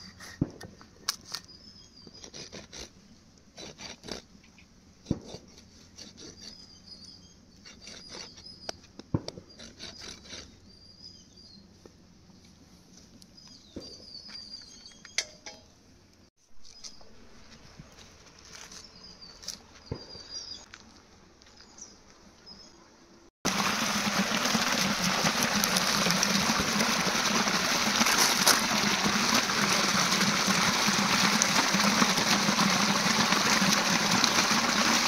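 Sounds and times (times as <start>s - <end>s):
scraping and rubbing strokes: 23.6s - 35.0s.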